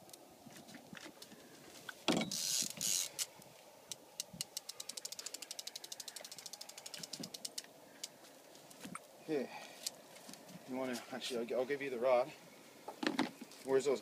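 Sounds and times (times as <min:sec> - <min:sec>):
fishing reel clicking: 0:02.3 - 0:03.3, 0:04.1 - 0:07.7.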